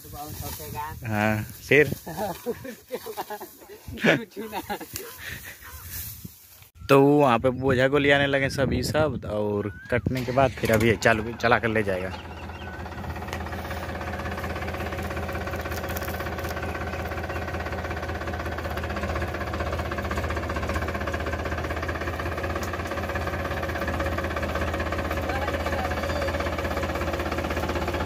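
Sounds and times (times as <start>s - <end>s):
tractor diesel engine at low revs: 10.1s - 28.0s.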